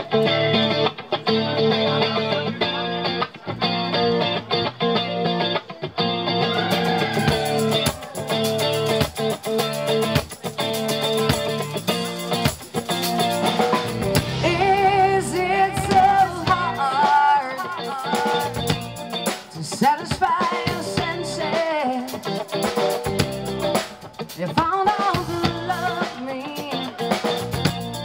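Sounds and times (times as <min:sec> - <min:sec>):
rock band playing: 0:00.0 - 0:28.0
woman singing lead: 0:13.6 - 0:22.4, 0:24.3 - 0:27.5.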